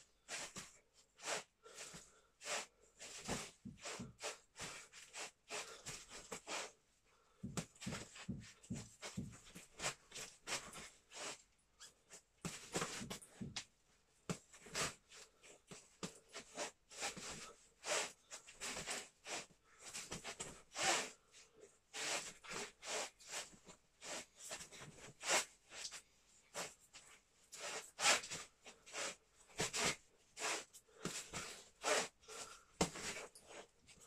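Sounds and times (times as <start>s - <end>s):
low thumps of feet on floor: 7.4s - 9.6s.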